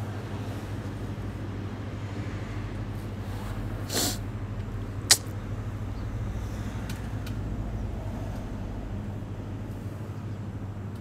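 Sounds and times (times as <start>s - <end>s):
sharp click: 5.1s - 5.3s.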